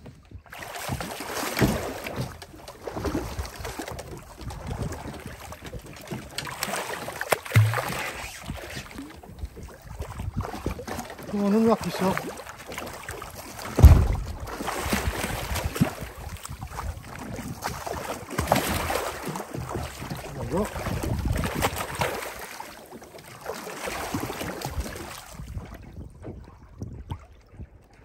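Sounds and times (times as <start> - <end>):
shark thrashing in water: 6.2 - 9.6, 10.2 - 20.1
loud thump: 13.7 - 14.6.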